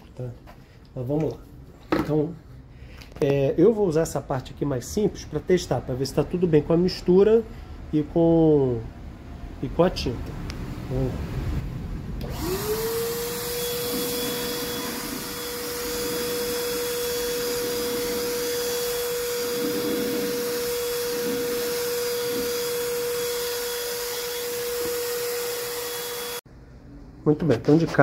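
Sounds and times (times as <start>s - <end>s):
paint spray gun motor whine: 12.2s - 26.4s.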